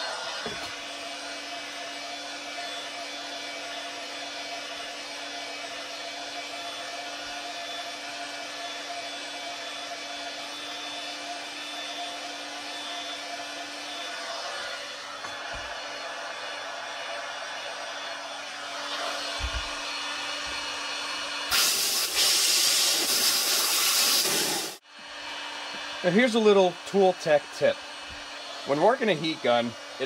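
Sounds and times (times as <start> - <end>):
heat gun fan and motor hum: 0.0 - 30.0
rush of hot air: 21.5 - 24.8.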